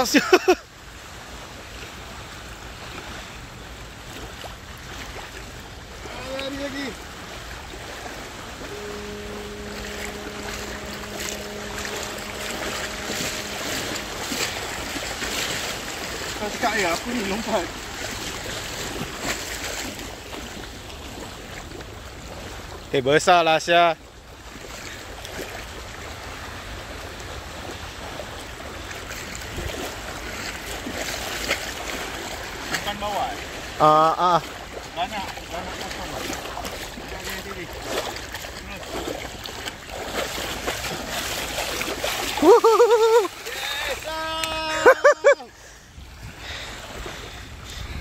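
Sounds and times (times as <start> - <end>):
small waves lapping: 0.0 - 48.0
sea water sloshing around legs: 1.0 - 22.9, 24.1 - 48.0
steady low hum: 7.6 - 19.2
low rumble: 8.4 - 16.4
wind on microphone: 45.8 - 48.0.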